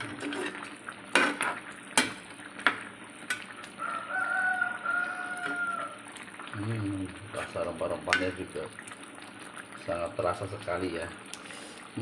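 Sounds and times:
low sizzle: 0.0s - 12.0s.

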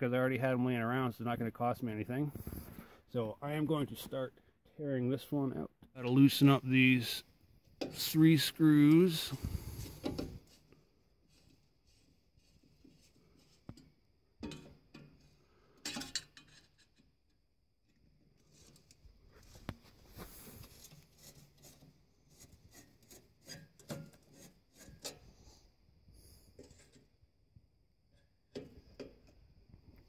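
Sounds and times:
metal clicks and knocks: 14.4s - 15.1s.

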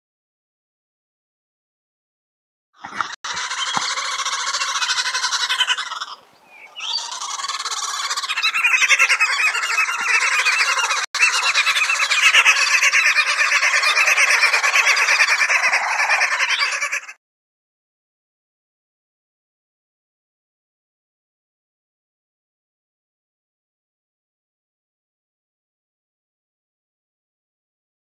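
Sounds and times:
bird harsh cackling chatter: 2.8s - 17.2s.

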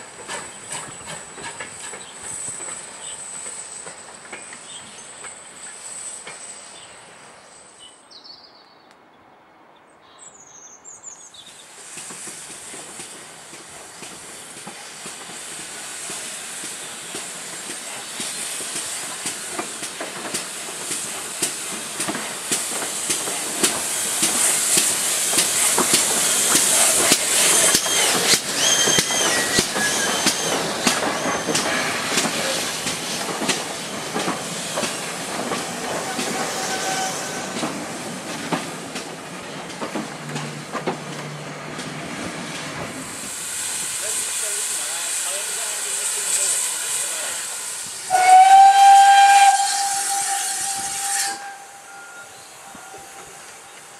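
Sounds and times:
hiss of steam: 0.0s - 7.8s, 11.2s - 53.9s
steam locomotive drawing in: 0.0s - 8.5s, 9.4s - 53.9s
wheels squealing: 26.2s - 33.2s, 34.6s - 38.0s
wheels clicking over rail joints: 37.5s - 43.0s.

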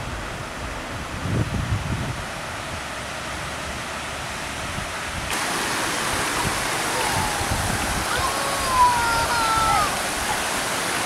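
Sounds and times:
river water pouring over weir: 0.0s - 11.0s.

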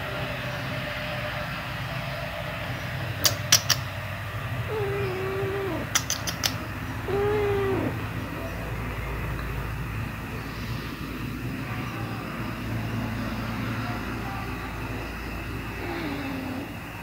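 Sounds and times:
steady low hum: 0.0s - 17.0s
sharp clicks: 3.2s - 3.9s, 5.8s - 6.7s
cat meowing: 4.7s - 8.1s, 15.8s - 16.7s.

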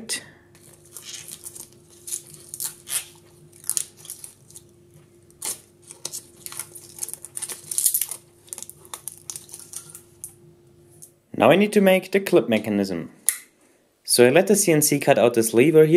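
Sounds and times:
faint steady hum: 0.0s - 15.9s
film peeling crackle: 0.5s - 10.4s.

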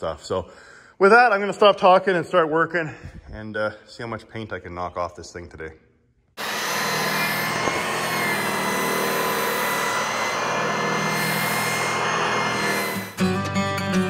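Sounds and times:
metal polisher grinding paint: 6.4s - 14.0s.

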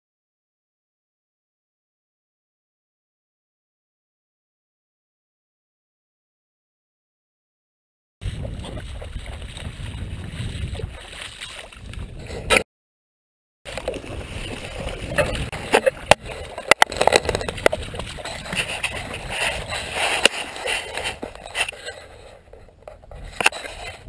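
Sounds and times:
dog wading through water: 8.2s - 12.4s, 13.7s - 24.0s
wind rumbling on microphone: 8.2s - 12.6s, 13.7s - 24.0s.

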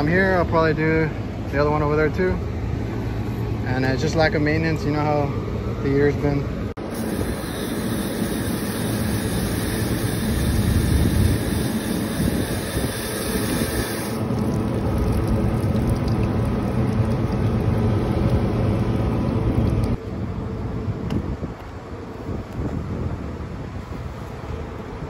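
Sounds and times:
hose nozzle spraying water: 6.8s - 16.3s.

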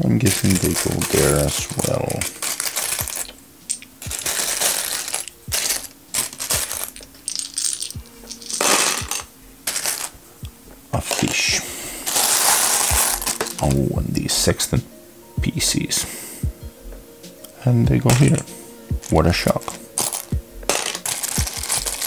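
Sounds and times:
plastic tiles clicking and clattering: 0.2s - 10.1s, 12.1s - 13.7s, 18.1s - 22.0s.

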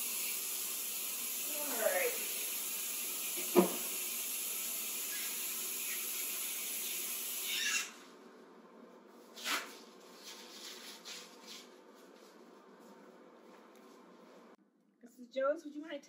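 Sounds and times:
tap water running into basin: 0.0s - 7.5s
knock: 3.5s - 3.8s.

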